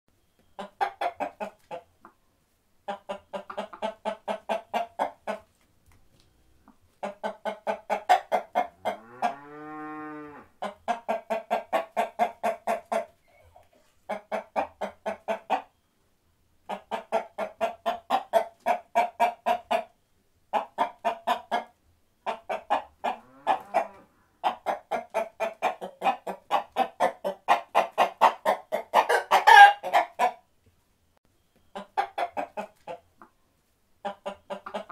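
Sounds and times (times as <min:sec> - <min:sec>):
chickens clucking: 0:00.4 - 0:09.9, 0:10.6 - 0:15.8, 0:16.6 - 0:30.5, 0:31.5 - 0:34.9
chicken call: 0:29.0 - 0:30.0.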